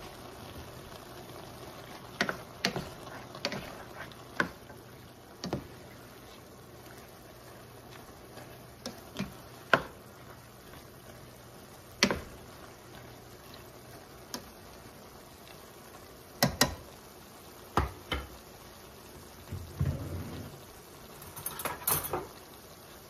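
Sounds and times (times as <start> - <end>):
meat simmering: 0.0 - 23.0
spoon knocking against pan: 16.4 - 16.8, 17.8 - 18.4.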